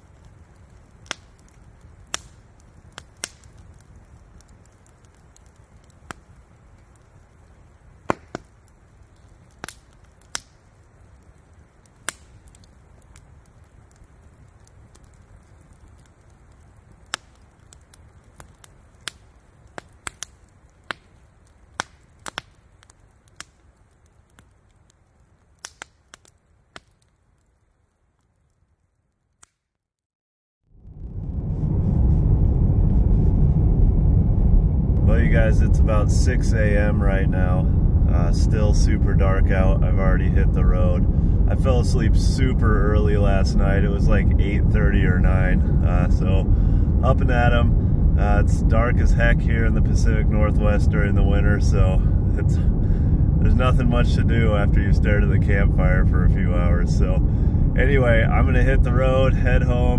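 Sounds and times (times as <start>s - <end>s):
campfire crackling and popping: 0.0s - 29.8s, 30.7s - 59.9s
low steady rumble: 30.7s - 59.9s.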